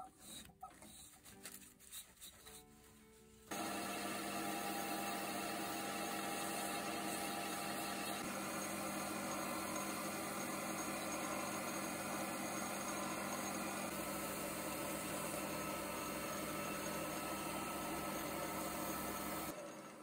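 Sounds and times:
abrasive stick sanding: 0.0s - 3.0s
small lathe humming: 3.5s - 20.0s.

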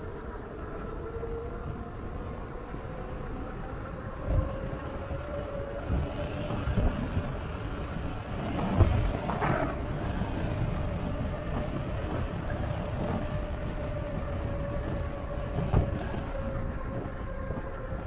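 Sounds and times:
wind buffeting microphone: 0.0s - 18.0s
wind rush: 1.3s - 18.0s
tyre noise on road: 5.8s - 18.0s.

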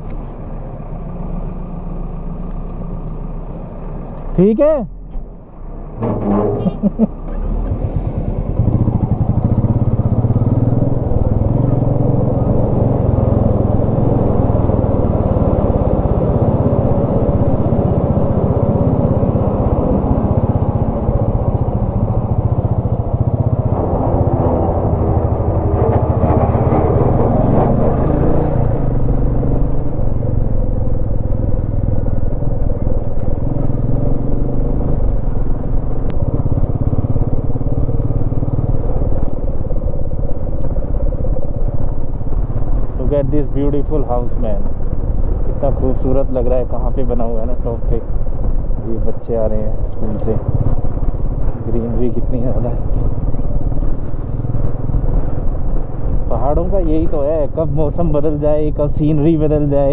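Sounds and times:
motorcycle engine running: 6.0s - 59.9s
wind noise on microphone: 12.4s - 59.9s.

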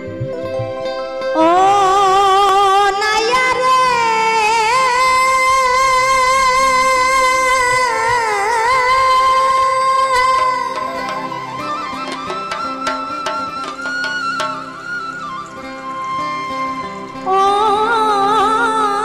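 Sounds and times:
instrumental backing: 0.0s - 19.0s
woman singing with vibrato: 1.4s - 11.6s, 17.2s - 19.0s.

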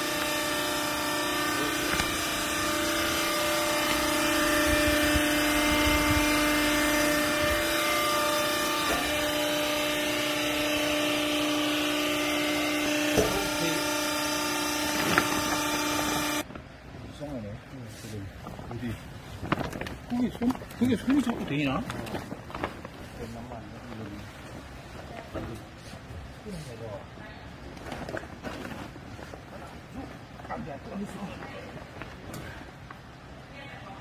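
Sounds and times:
baler motor and pump humming: 0.0s - 17.4s.

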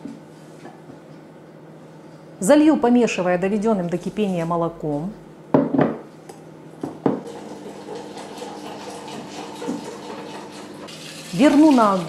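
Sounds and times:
milk pouring into a bowl: 7.2s - 12.0s.

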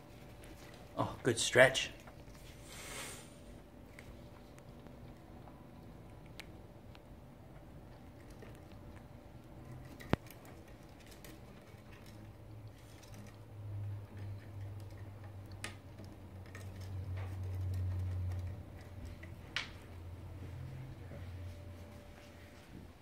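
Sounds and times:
beak and claws clicking on wood: 7.9s - 20.0s
low hum: 11.6s - 23.0s.

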